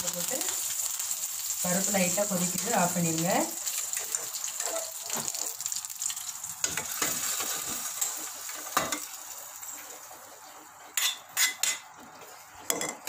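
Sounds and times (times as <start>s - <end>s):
spices sizzling in hot oil: 0.0s - 12.4s.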